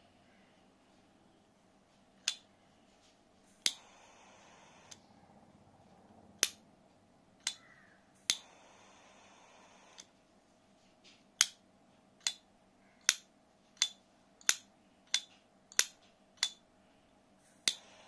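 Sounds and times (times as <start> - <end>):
jet flame hissing: 3.6 - 5.0.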